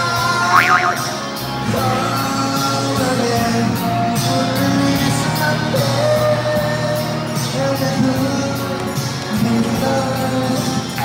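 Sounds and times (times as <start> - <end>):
man singing into a microphone: 0.0 - 11.0
pop backing track with beat: 0.2 - 1.3.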